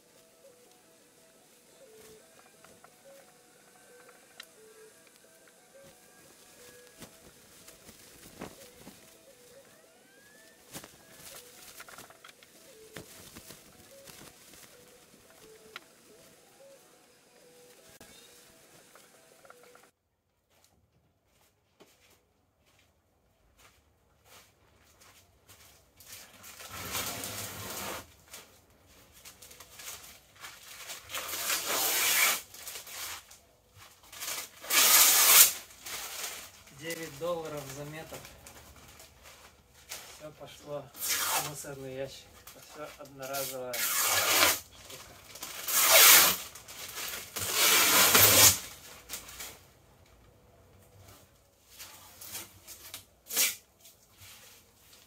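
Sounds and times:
peel ply tearing off laminate: 0:31.1 - 0:32.4, 0:34.3 - 0:35.6, 0:41.0 - 0:41.5, 0:43.8 - 0:44.6, 0:45.6 - 0:46.4, 0:47.4 - 0:48.7.

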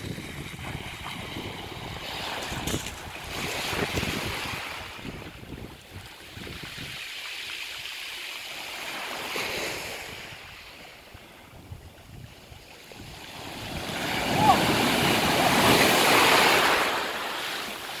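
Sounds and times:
wind buffeting microphone: 0:00.0 - 0:07.0
waves washing onto pebble beach: 0:00.9 - 0:05.4, 0:13.0 - 0:18.0.

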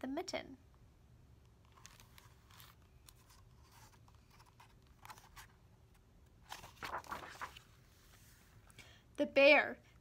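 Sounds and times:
paper pages rustling: 0:01.6 - 0:08.6.

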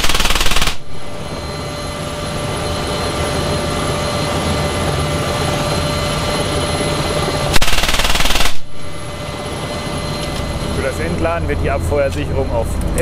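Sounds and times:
heavy machine gun burst: 0:00.0 - 0:00.8, 0:07.6 - 0:08.7
helicopter turbine and rotor noise: 0:00.0 - 0:13.0.

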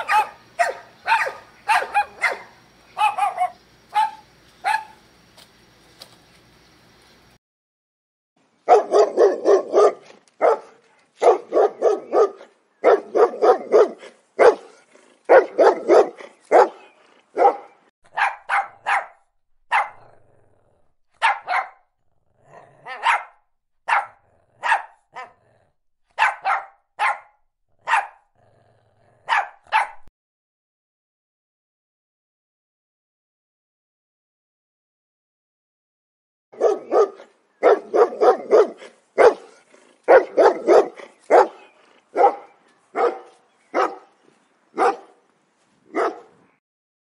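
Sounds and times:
dog barking rapidly: 0:00.0 - 0:05.0, 0:08.6 - 0:20.2, 0:21.2 - 0:21.8, 0:22.8 - 0:25.4, 0:26.1 - 0:28.2, 0:29.2 - 0:30.1, 0:36.6 - 0:44.1, 0:44.8 - 0:45.2, 0:45.9 - 0:46.4
small dog's higher barks: 0:00.0 - 0:05.0, 0:08.7 - 0:16.8, 0:17.4 - 0:20.0, 0:21.2 - 0:21.8, 0:22.9 - 0:25.3, 0:26.2 - 0:28.2, 0:29.3 - 0:30.1, 0:36.6 - 0:41.6, 0:42.2 - 0:44.0, 0:44.8 - 0:45.2, 0:45.9 - 0:46.4.

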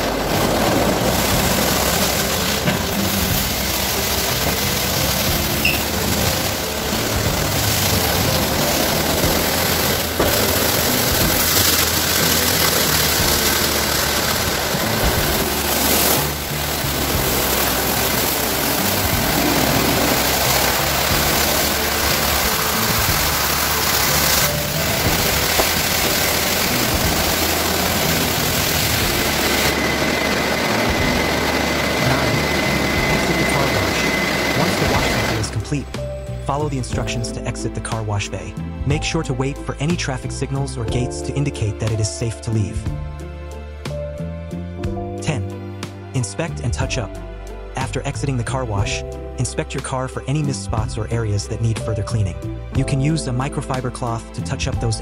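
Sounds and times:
machine motors running: 0:00.0 - 0:35.8
car-wash brushes and water spray: 0:00.0 - 0:35.9
background music: 0:00.0 - 0:55.0.

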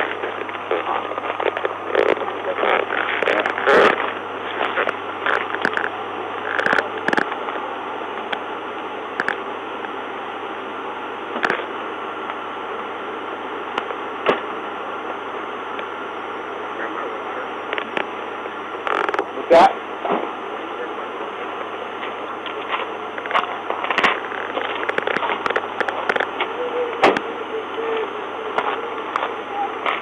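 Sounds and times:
faint clicks and crackles: 0:00.0 - 0:10.0, 0:11.3 - 0:12.4, 0:18.8 - 0:19.4, 0:21.6 - 0:26.5
static hiss with low hum: 0:00.0 - 0:30.0.

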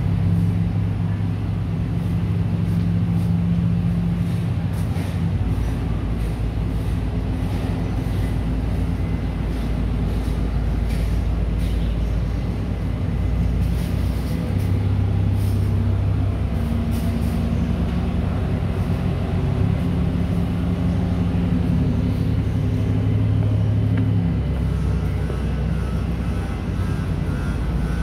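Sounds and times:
low machinery drone: 0:00.0 - 0:28.0.

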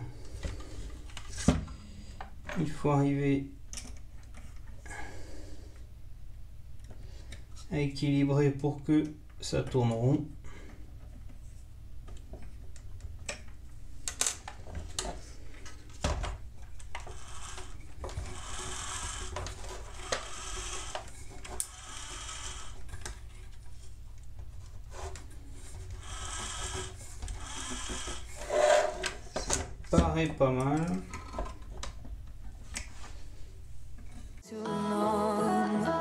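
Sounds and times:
plastic parts clicking and rubbing: 0:10.9 - 0:32.9
small electric motor whirring: 0:17.1 - 0:22.8, 0:26.0 - 0:29.0.

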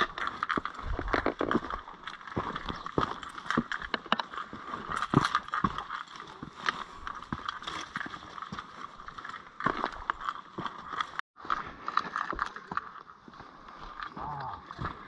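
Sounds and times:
footsteps on rock and grit: 0:00.0 - 0:15.0.

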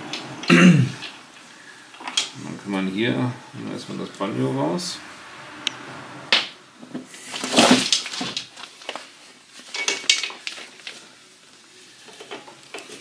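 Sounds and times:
rustling scrape: 0:07.0 - 0:11.2.

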